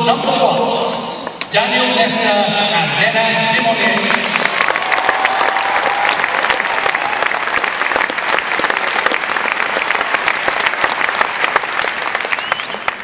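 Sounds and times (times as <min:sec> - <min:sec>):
audience applauding: 0:03.6 - 0:13.0.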